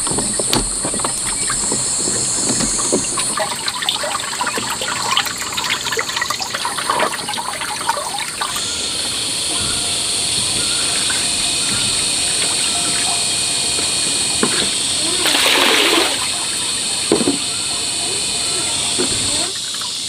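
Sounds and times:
water splashing and trickling: 0.0s - 20.0s
high-pitched drone: 8.4s - 20.0s.

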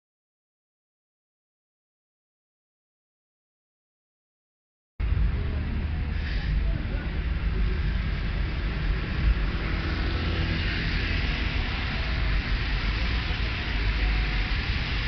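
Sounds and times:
car engines rumbling: 5.0s - 15.0s
tyres hissing on wet road: 5.0s - 15.0s.

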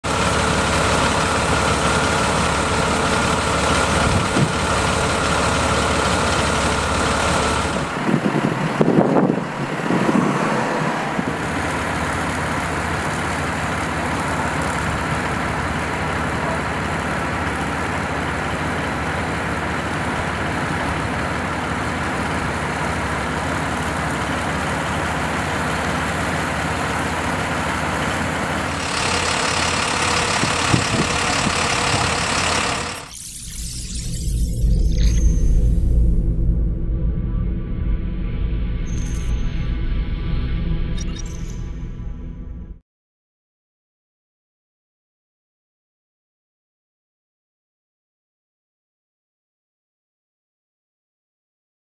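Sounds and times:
engine knocks: 0.0s - 10.3s, 11.1s - 33.1s
diesel engine idling: 0.0s - 33.1s.

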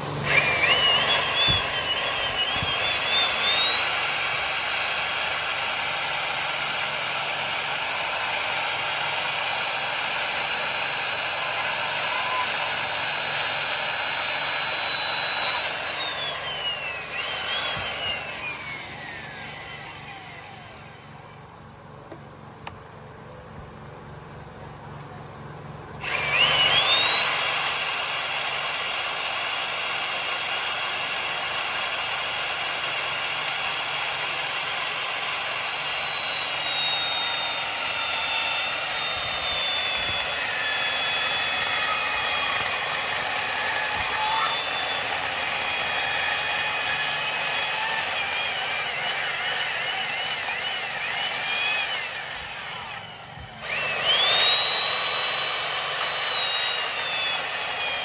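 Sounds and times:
electric chainsaw cutting wood: 0.0s - 21.6s, 26.0s - 58.0s.

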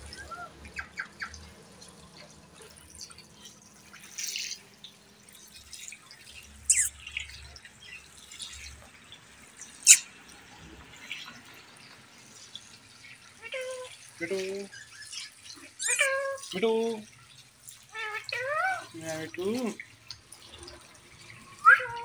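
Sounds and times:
parakeet sharp high calls: 6.6s - 7.3s, 9.8s - 10.1s, 14.7s - 16.5s
parakeet soft chirps: 6.6s - 7.3s, 9.6s - 10.1s, 14.7s - 16.2s.

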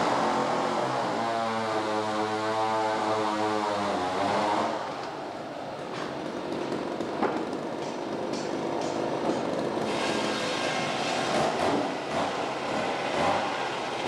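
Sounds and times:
saw cutting timber: 0.0s - 5.0s, 6.0s - 14.0s
mill machinery running: 5.8s - 13.1s.

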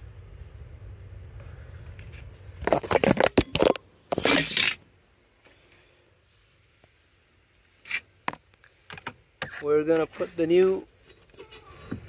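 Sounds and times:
scraping rustle: 1.4s - 4.8s, 9.4s - 12.0s.

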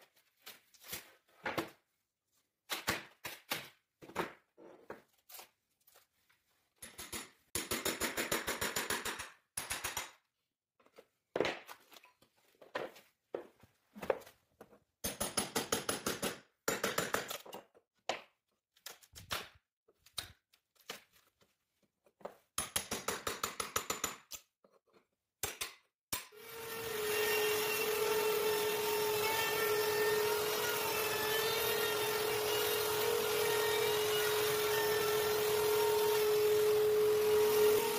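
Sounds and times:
electric trim router running: 26.4s - 37.9s.

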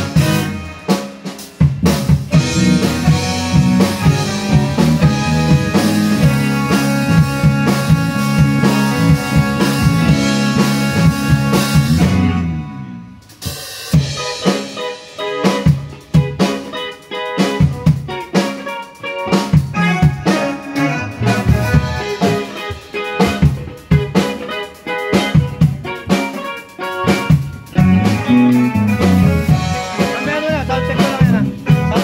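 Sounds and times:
drum hits: 0.0s - 12.4s
drum kit playing: 0.0s - 32.0s
held bass and chord tones: 1.8s - 14.2s, 19.6s - 26.1s, 27.0s - 32.0s.

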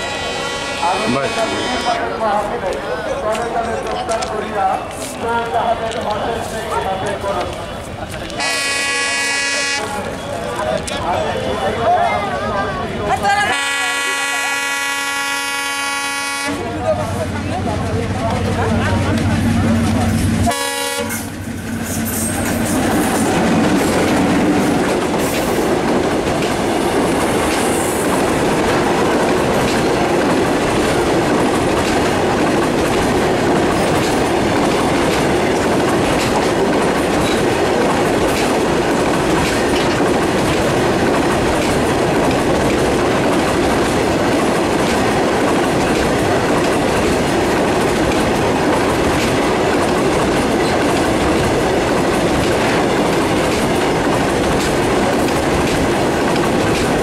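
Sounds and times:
freight train wheels rumbling: 0.0s - 57.0s
wheels clickety-clack: 2.6s - 8.9s, 21.1s - 57.0s.

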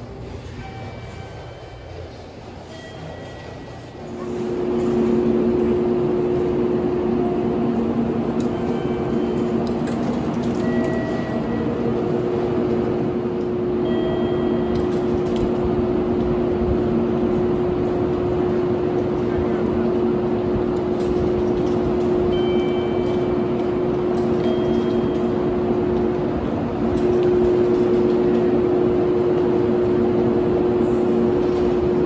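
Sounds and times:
mechanical drone with humming tones: 4.2s - 32.0s.

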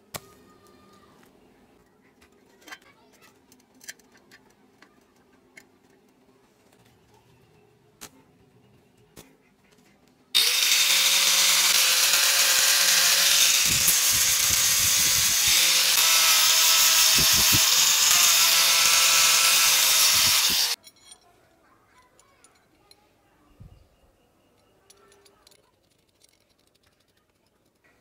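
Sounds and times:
angle grinder grinding steel: 10.4s - 20.8s.

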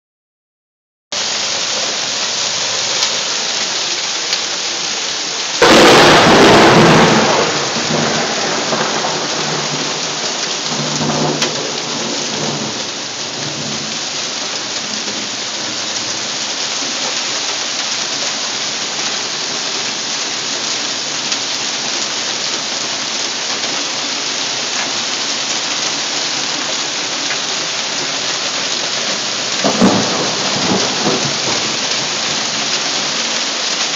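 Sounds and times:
hail pelting down: 1.2s - 33.9s
thunder crash: 5.6s - 12.8s, 29.6s - 31.8s.

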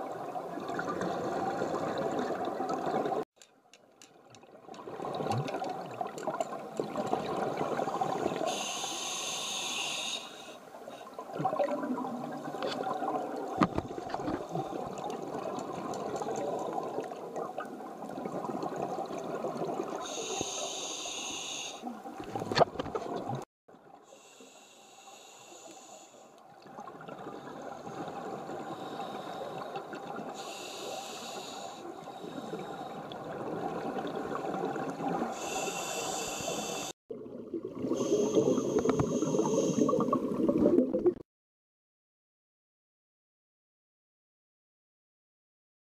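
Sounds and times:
regulator hissing inhalations: 8.4s - 11.0s, 20.0s - 21.9s, 24.1s - 26.4s, 30.4s - 33.0s, 35.4s - 37.0s, 38.0s - 40.0s.

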